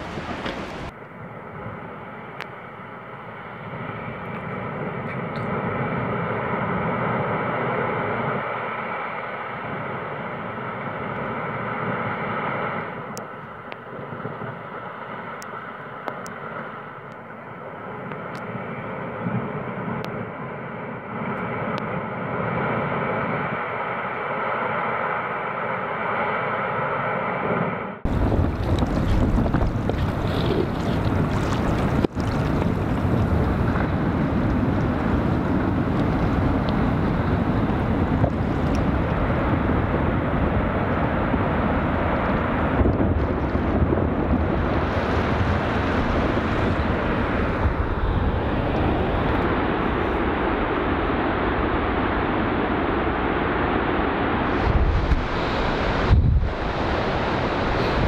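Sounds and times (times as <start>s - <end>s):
distant rockfall roar: 0.0s - 0.9s, 28.1s - 58.0s.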